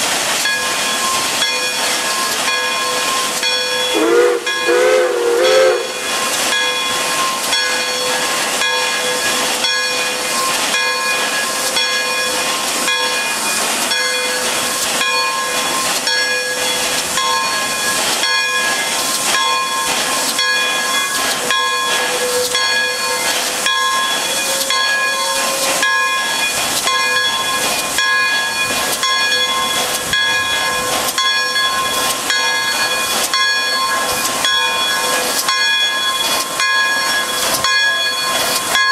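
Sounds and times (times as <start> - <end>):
rhythmic locomotive beat: 0.0 - 38.9
steam locomotive hissing: 0.0 - 38.9
steam whistle: 3.7 - 6.1, 20.9 - 26.3.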